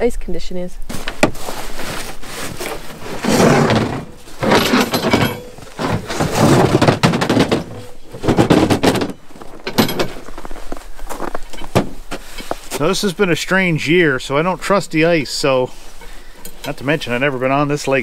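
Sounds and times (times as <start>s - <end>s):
footsteps crunching through snow: 0.9s - 3.5s, 9.2s - 13.1s.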